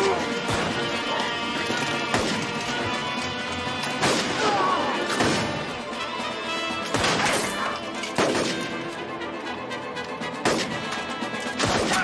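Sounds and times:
background music: 0.0 - 12.0
musket shots: 0.1 - 3.0, 3.8 - 5.8, 6.8 - 8.9, 10.4 - 12.0.

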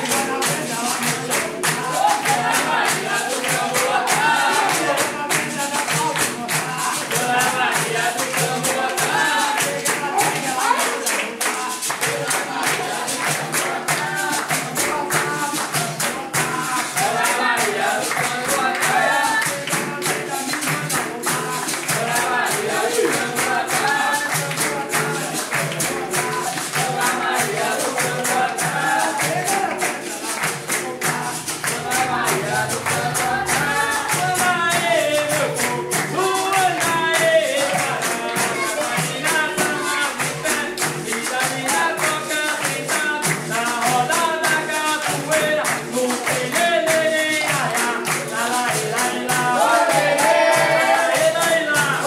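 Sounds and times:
pandeiro: 0.0 - 52.0
steady percussion: 0.0 - 52.0
voices singing: 0.0 - 52.0.

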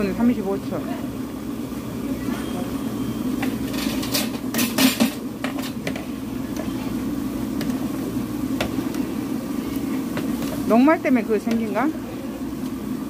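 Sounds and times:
vegetables sizzling in oil: 3.0 - 13.0.

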